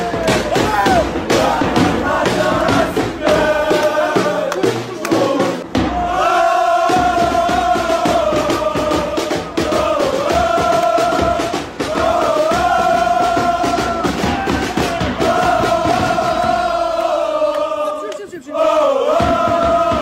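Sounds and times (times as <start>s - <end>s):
crowd chanting: 0.0s - 20.0s.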